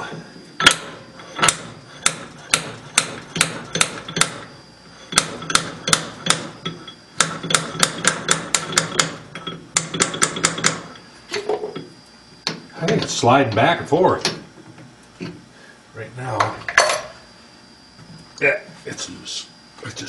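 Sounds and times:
sharp metallic knocks: 0.6s - 4.4s.

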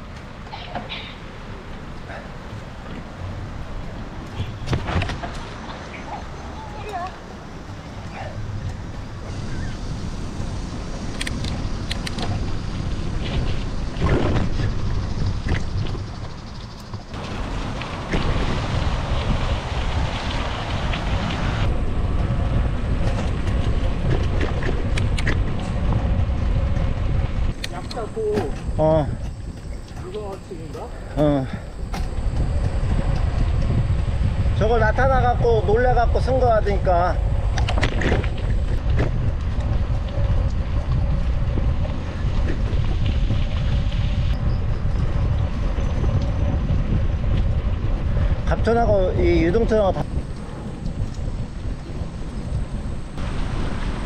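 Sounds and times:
road and tyre noise: 0.0s - 54.0s
wind rumbling on microphone: 0.0s - 54.0s
sharp clicks: 11.1s - 12.3s.

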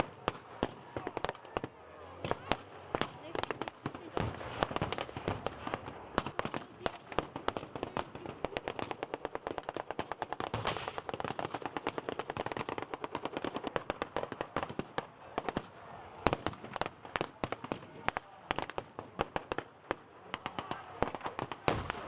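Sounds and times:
rapid gunfire: 2.2s - 14.7s.

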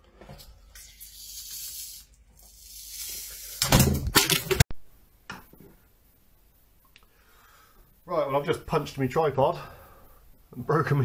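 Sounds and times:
fish skin tearing hiss: 0.8s - 3.6s.

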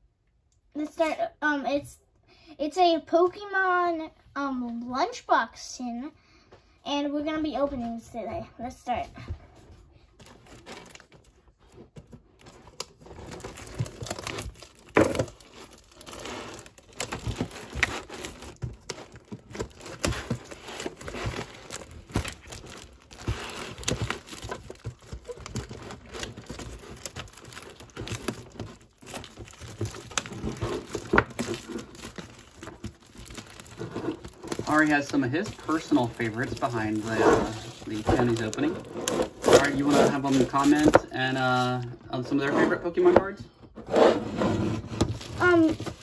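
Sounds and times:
plastic shrink wrap crinkling: 10.2s - 41.9s, 44.9s - 46.0s.

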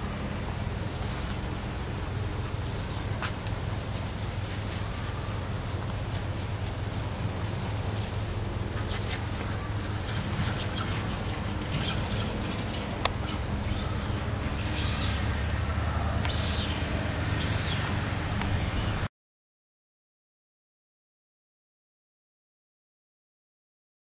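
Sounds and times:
small birds chirping: 0.7s - 19.0s.

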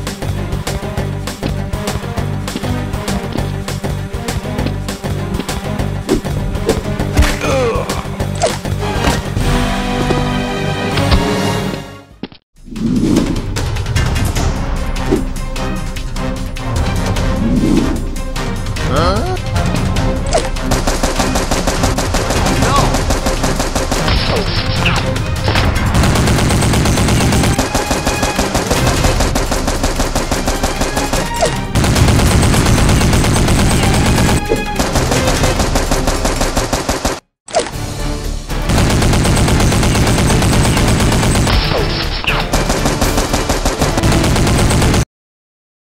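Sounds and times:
background music: 0.0s - 45.0s
automatic gunfire sound effects: 20.6s - 37.2s, 38.7s - 45.1s.

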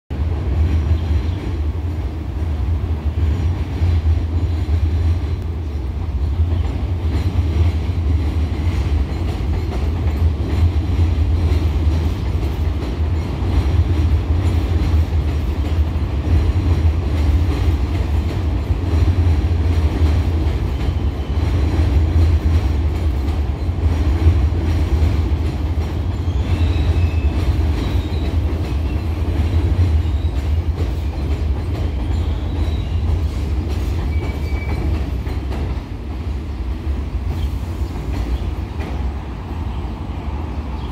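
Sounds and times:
train rumbling on elevated track: 0.1s - 40.9s
high wheel squeal: 34.1s - 34.9s.

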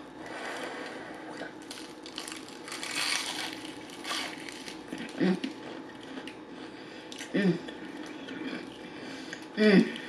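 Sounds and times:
fried chicken crunching when chewed: 1.5s - 6.4s.

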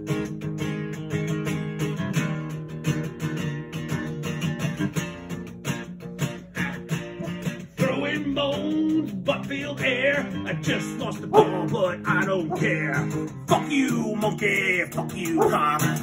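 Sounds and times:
strummed guitar: 0.0s - 16.0s
person singing: 6.5s - 16.0s.

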